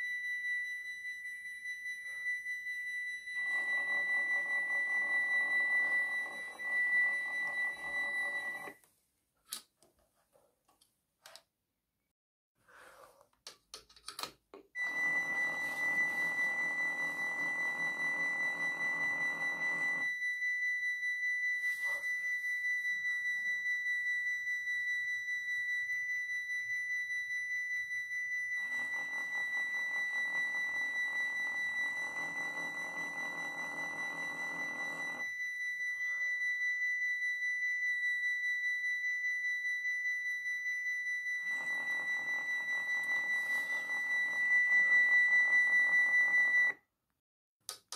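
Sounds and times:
high-pitched electronic warning tone: 0:14.8 - 0:46.8.

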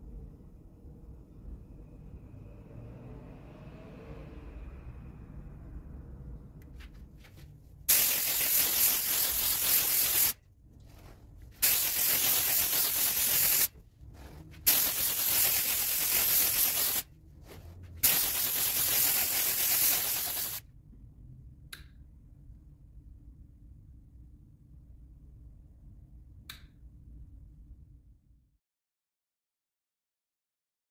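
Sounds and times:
spray bursts: 0:07.9 - 0:10.4, 0:11.6 - 0:13.7, 0:14.6 - 0:20.6
faint click: 0:21.7 - 0:22.0, 0:26.5 - 0:26.8.

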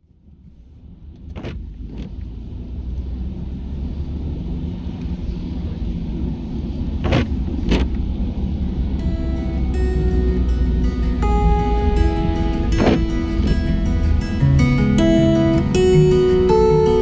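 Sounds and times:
car rumbling on road: 0:00.0 - 0:17.0
sharp clicks or knocks: 0:07.0 - 0:08.0, 0:12.7 - 0:13.2.

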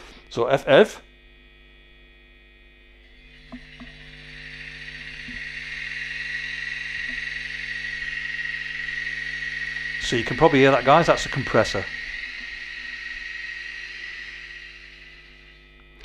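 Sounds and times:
steady whine: 0:00.0 - 0:16.0
air compressor hiss: 0:03.1 - 0:15.6.

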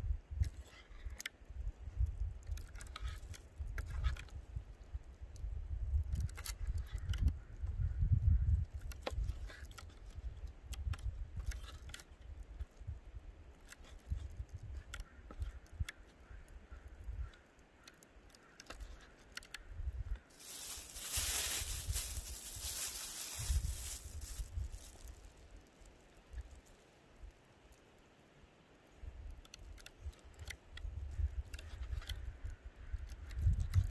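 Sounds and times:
wind rumble on microphone: 0:00.0 - 0:17.4, 0:19.6 - 0:25.6, 0:29.0 - 0:33.9
loud rustling hiss: 0:20.3 - 0:25.4.

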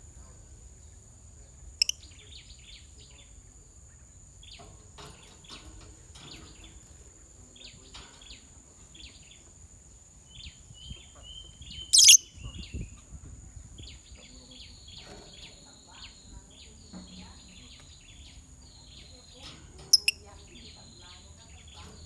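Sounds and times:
lovebirds chirping: 0:00.0 - 0:22.0
shrill bird call: 0:11.8 - 0:12.4.

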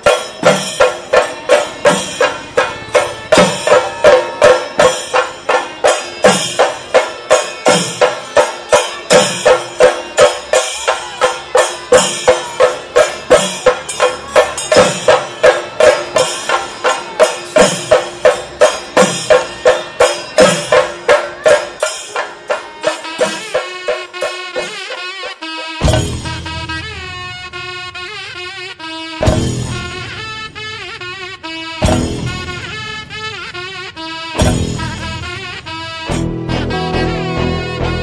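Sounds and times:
drums beating steadily: 0:00.0 - 0:38.0.

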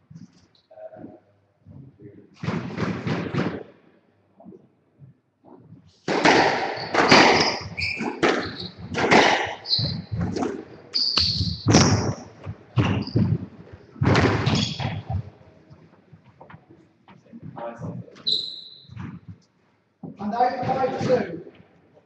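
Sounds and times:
squash ball hits echoing: 0:06.0 - 0:13.4, 0:14.0 - 0:15.3
shoe squeaks on court: 0:06.6 - 0:13.4, 0:14.2 - 0:15.2, 0:18.2 - 0:19.3.

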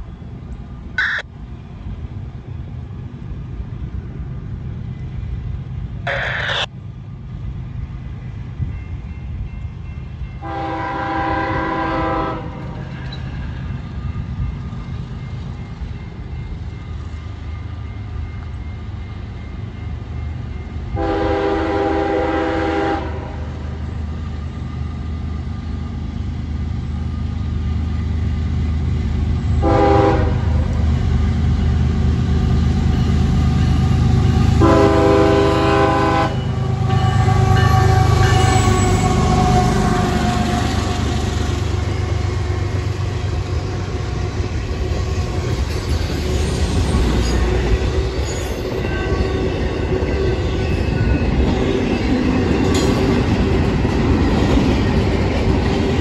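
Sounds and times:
locomotive engine and wheels rumbling: 0:00.0 - 0:56.0
train air horn blasts: 0:10.4 - 0:12.9, 0:21.0 - 0:23.6, 0:29.6 - 0:30.7, 0:34.6 - 0:40.8.

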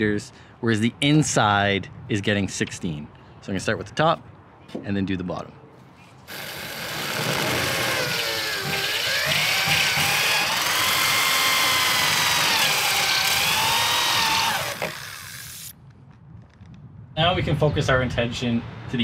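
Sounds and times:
cordless drill motor whine: 0:06.3 - 0:15.7.

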